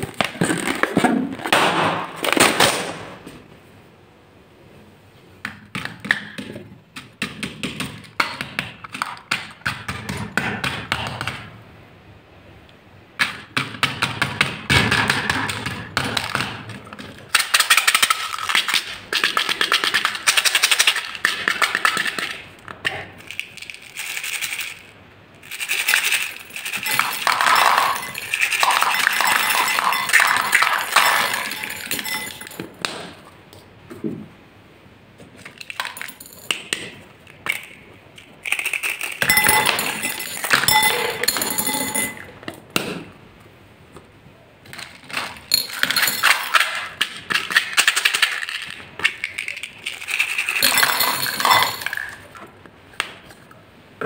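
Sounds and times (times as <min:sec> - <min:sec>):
beads rattling in plastic cups: 0:23.2 - 0:32.6, 0:38.4 - 0:42.2, 0:45.5 - 0:52.3
beads spilling onto glass bowl: 0:26.2 - 0:32.6, 0:50.6 - 0:51.9.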